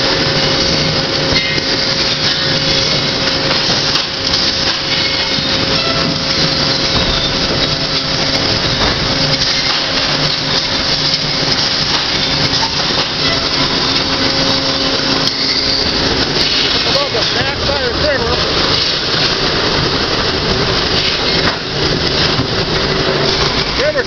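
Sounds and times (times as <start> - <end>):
conveyors moving boards: 0.0 - 24.0
steady machine hum: 0.0 - 24.0.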